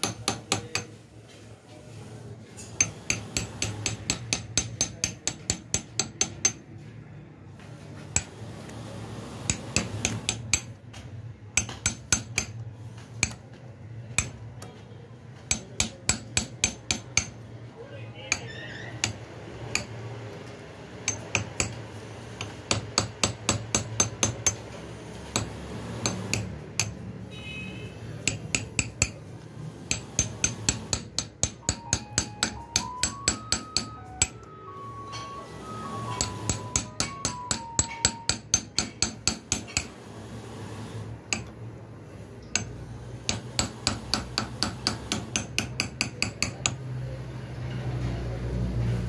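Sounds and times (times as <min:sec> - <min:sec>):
hammer tapping steel punch: 0:00.0 - 0:01.0, 0:02.8 - 0:06.7, 0:09.5 - 0:11.0, 0:11.6 - 0:14.7, 0:15.4 - 0:17.4, 0:18.3 - 0:20.0, 0:21.0 - 0:21.8, 0:22.4 - 0:24.7, 0:25.3 - 0:27.0, 0:28.2 - 0:29.2, 0:29.9 - 0:34.5, 0:36.1 - 0:39.9, 0:41.3 - 0:41.6, 0:42.4 - 0:46.8.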